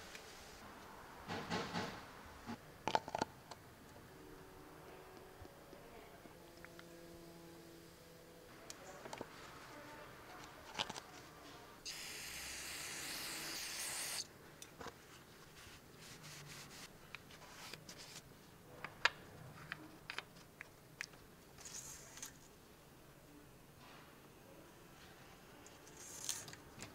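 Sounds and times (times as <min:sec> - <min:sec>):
steady hiss: 0:11.8 - 0:14.3.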